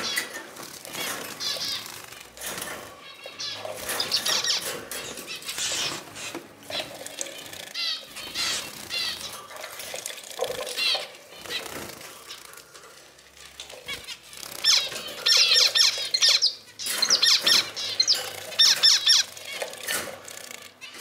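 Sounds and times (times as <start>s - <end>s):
wings fluttering: 0.0s - 21.0s
water splashing: 5.4s - 12.8s
short nasal finch calls: 7.8s - 9.3s, 14.6s - 19.3s.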